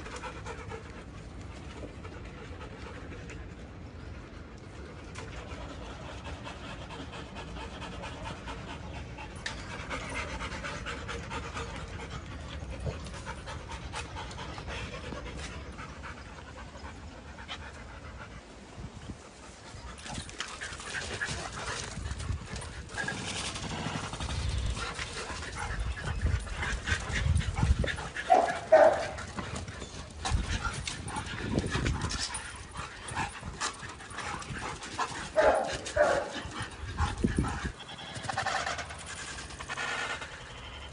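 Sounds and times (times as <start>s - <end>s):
dogs panting: 0.0s - 40.9s
dogs scuffling: 19.9s - 40.6s.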